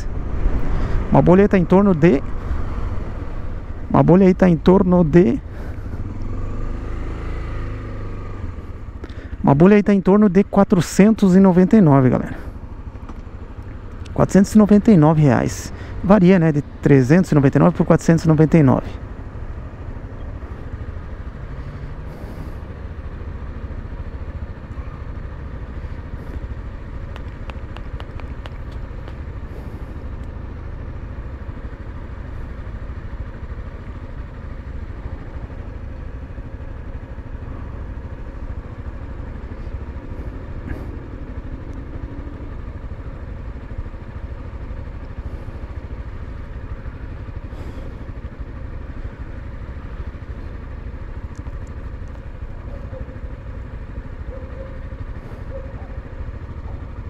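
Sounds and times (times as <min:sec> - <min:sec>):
motorcycle engine idling: 0:00.0 - 0:57.0
faint ticks: 0:26.3 - 0:29.4, 0:30.2 - 0:30.4, 0:51.0 - 0:52.4.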